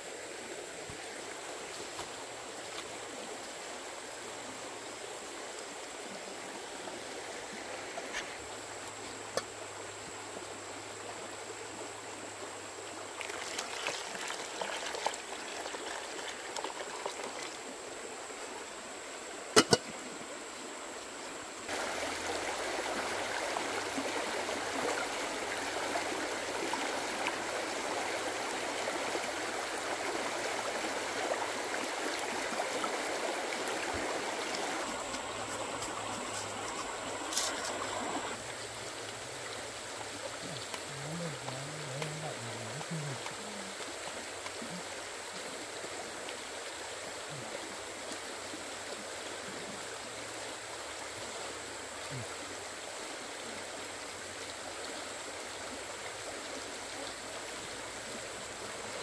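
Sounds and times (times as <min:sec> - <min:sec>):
water running: 0:21.7 - 0:46.4.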